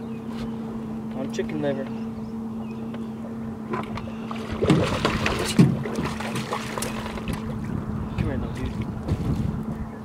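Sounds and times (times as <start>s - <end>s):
steady low hum: 0.0s - 10.0s
fish splashing at water surface: 4.3s - 7.5s.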